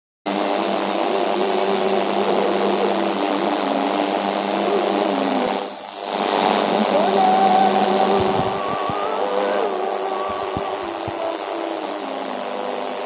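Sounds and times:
faint voice chanting: 6.4s - 13.0s.

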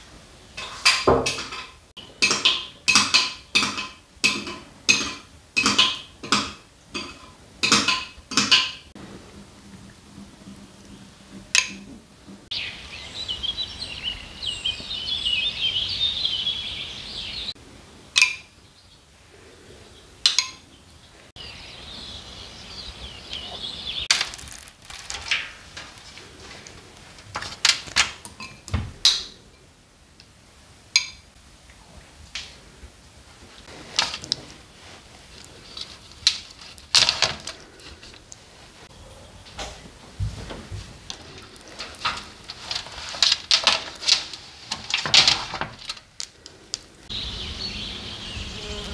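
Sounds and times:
small birds chirping: 12.5s - 17.6s, 18.2s - 24.6s, 46.2s - 48.9s.

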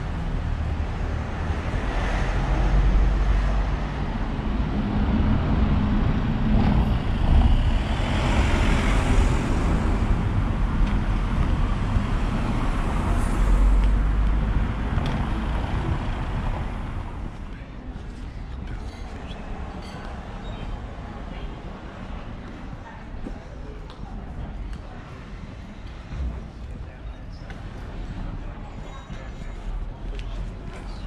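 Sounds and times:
cars driving past: 0.0s - 17.5s.

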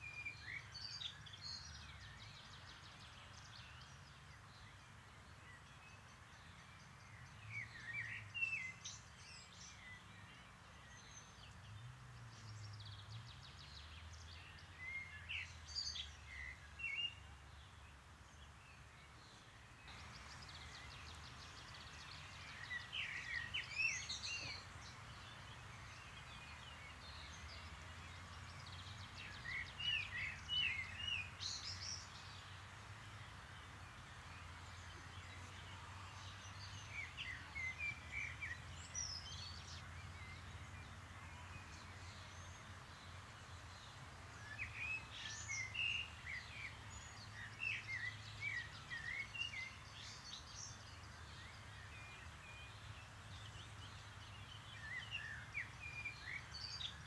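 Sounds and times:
songbird twittering: 19.2s - 32.6s, 43.4s - 57.0s.

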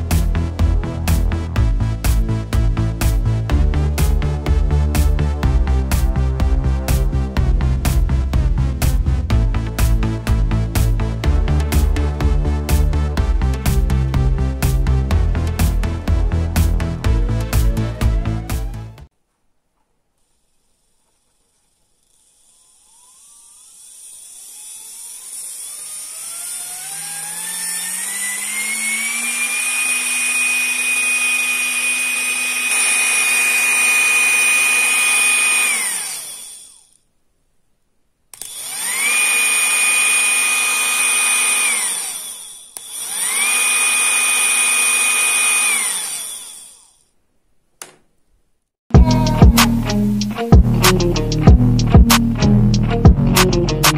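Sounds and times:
music: 0.0s - 19.1s, 48.9s - 53.9s
electric motor whine: 15.9s - 19.1s, 20.2s - 37.0s, 38.4s - 47.1s.

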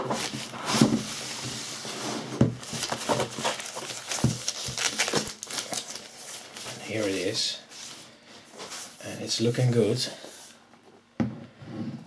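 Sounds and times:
plastic wrapping rustling: 0.0s - 9.1s.

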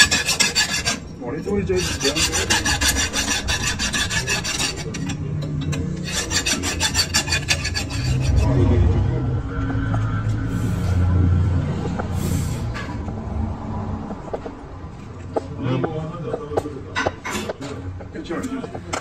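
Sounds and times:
hand file rasping on metal: 0.0s - 8.6s
low steady hum: 0.9s - 15.2s.

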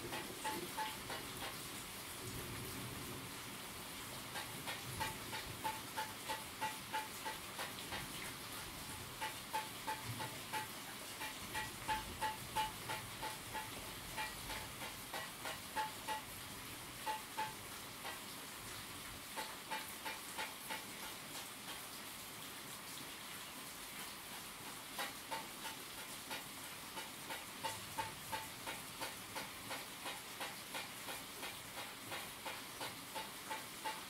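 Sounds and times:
steady rain hiss: 0.0s - 34.0s
ringing drip ticks: 0.1s - 1.6s, 4.3s - 8.2s, 8.9s - 16.4s, 17.0s - 18.2s, 25.0s - 34.0s.

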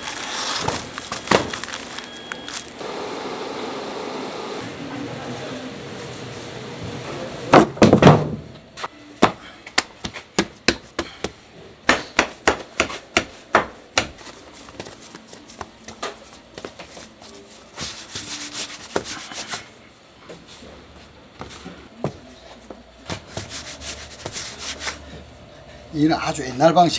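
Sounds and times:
hands rolling dough on board: 9.2s - 19.7s, 21.4s - 25.2s.

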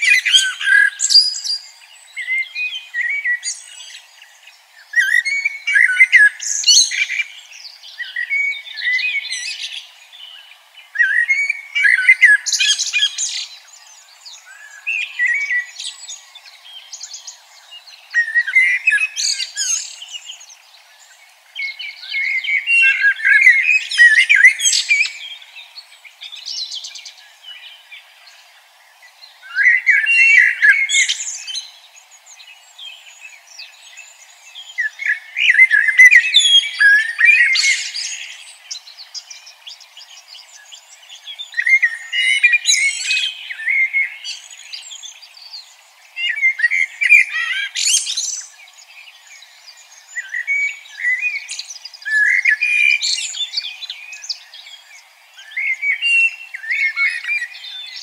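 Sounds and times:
songbird warbling: 46.2s - 58.0s.

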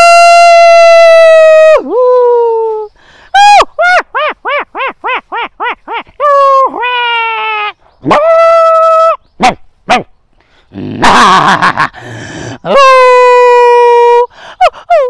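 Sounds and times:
man imitating howls and barks: 8.0s - 10.1s, 10.8s - 11.5s.

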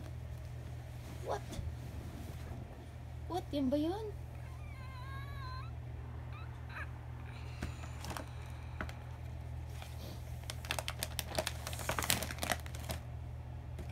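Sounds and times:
paper bag rustling and crinkling: 7.6s - 9.0s, 9.6s - 13.1s.

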